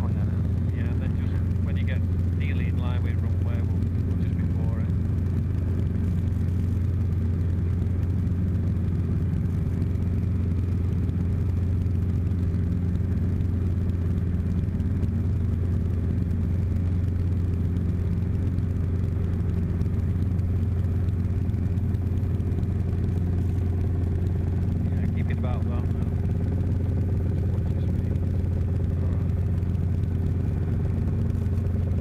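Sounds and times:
helicopter cabin drone: 0:00.0 - 0:32.0.

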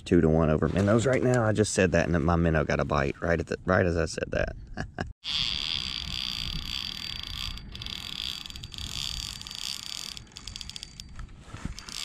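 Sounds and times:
fishing reel drag buzzing: 0:05.2 - 0:12.0.

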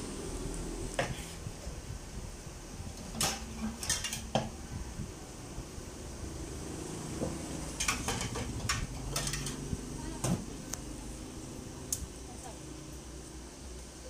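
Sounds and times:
metal spoon clinking dishes: 0:07.8 - 0:09.6.

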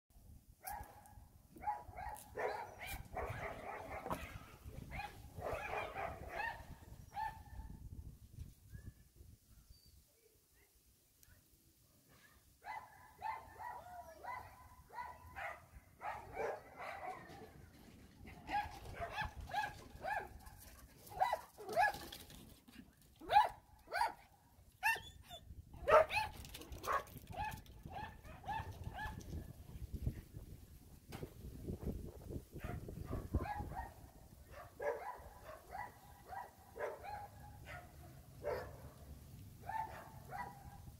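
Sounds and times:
dogs barking: 0:01.6 - 0:07.5, 0:12.6 - 0:17.5, 0:18.4 - 0:22.1, 0:23.3 - 0:24.2, 0:25.8 - 0:29.2, 0:32.6 - 0:38.9, 0:39.6 - 0:40.9.

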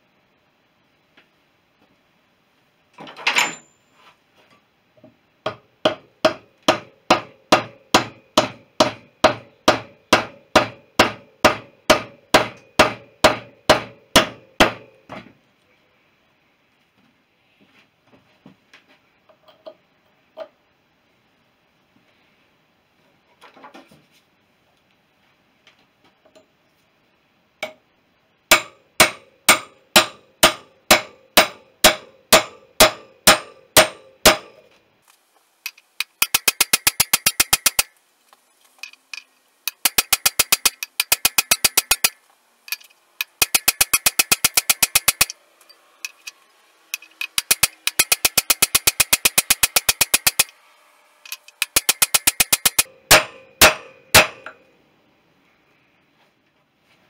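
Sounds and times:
hammer striking steel: 0:05.5 - 0:15.0, 0:28.5 - 0:34.7, 0:36.0 - 0:37.9, 0:39.7 - 0:42.2, 0:43.2 - 0:45.4, 0:47.0 - 0:50.5, 0:51.4 - 0:54.7
fast light metallic taps: 0:35.7 - 0:37.9, 0:39.7 - 0:42.2, 0:43.2 - 0:45.3, 0:47.0 - 0:50.5, 0:51.5 - 0:52.9.

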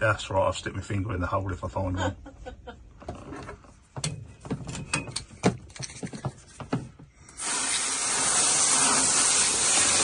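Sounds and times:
sharp knocks and clicks: 0:03.9 - 0:07.1
hose spraying water: 0:07.3 - 0:10.0.

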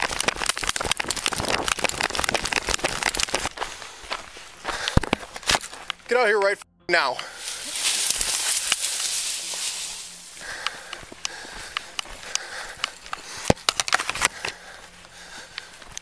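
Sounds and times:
leaves and brush rustling: 0:07.3 - 0:13.4.

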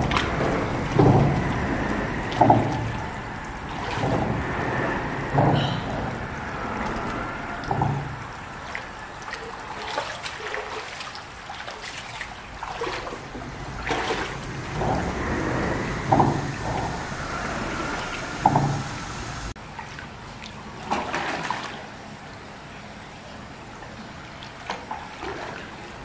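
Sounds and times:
dull thumps: 0:00.0 - 0:03.2, 0:05.2 - 0:06.4, 0:07.6 - 0:08.3, 0:13.9 - 0:17.6
stream trickling: 0:00.0 - 0:26.0
water splashing and sloshing: 0:00.0 - 0:26.0.

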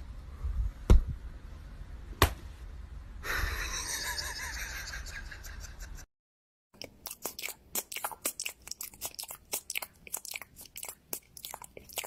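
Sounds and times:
sharp slaps: 0:02.2 - 0:02.4.

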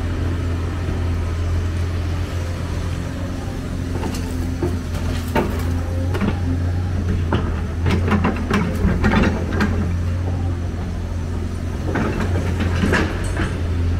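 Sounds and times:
excavator diesel engine running: 0:00.0 - 0:13.9
rubble clattering into truck bed: 0:04.0 - 0:06.4.

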